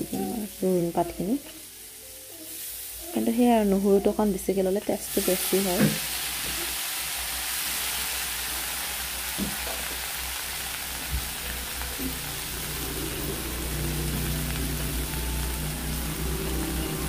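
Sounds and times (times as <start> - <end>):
leaves sizzling in hot oil: 0.0 - 17.0.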